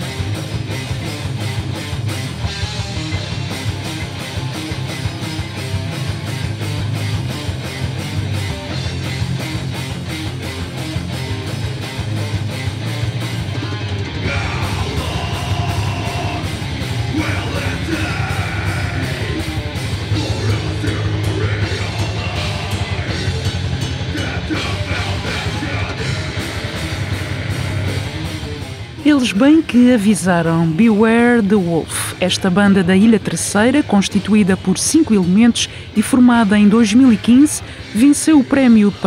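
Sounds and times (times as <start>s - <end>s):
heavy rock band playing: 0.0s - 39.0s
person singing: 14.2s - 27.8s.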